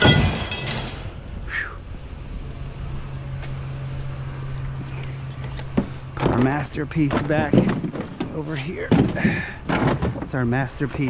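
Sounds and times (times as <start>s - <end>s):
engine running low hum: 0.0s - 11.0s
outdoor background noise: 0.0s - 11.0s.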